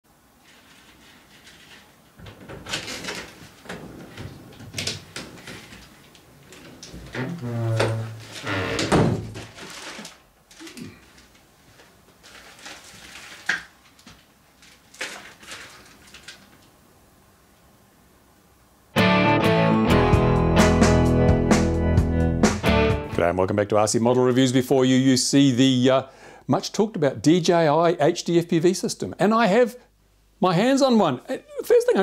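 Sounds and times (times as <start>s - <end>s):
door opening and shutting: 1.4s - 10.2s
plastic satchel rustling: 9.2s - 16.7s.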